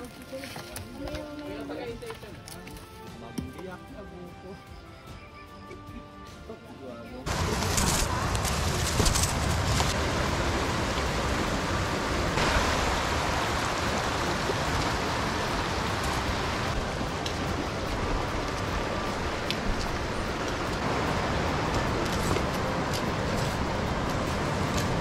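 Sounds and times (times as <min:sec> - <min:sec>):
river rushing over rocks: 0:07.3 - 0:25.0.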